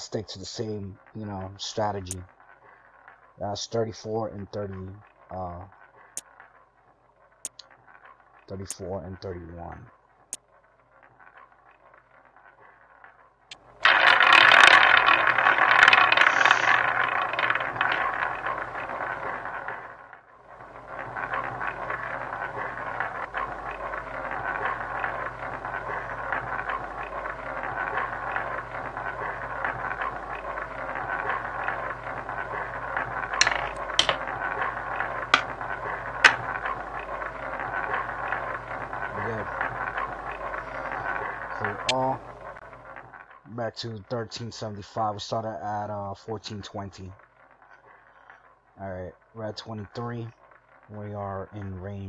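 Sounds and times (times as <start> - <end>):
roulette ball rattling: 0.6 - 43.5, 50.3 - 50.9
ball clicking into pocket: 13.9 - 19.5, 21.0 - 42.0.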